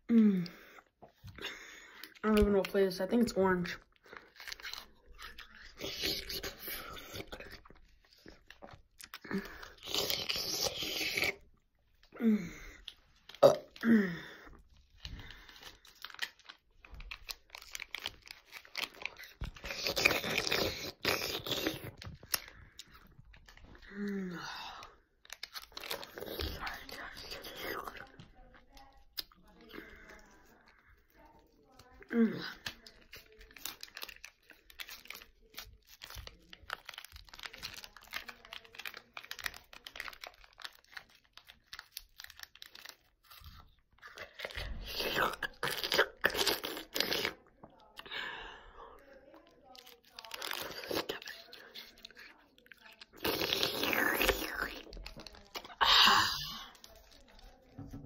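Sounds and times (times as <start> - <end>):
crunching and crackling: 1.1 - 48.0, 49.2 - 58.0
plastic sleeve crinkling: 14.7 - 23.9, 25.2 - 44.9, 49.3 - 58.0.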